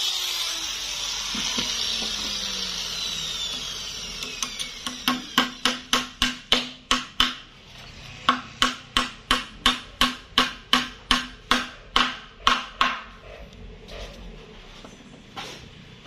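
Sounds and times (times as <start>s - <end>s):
hammer striking hard wood: 4.8s - 7.5s, 8.3s - 13.1s.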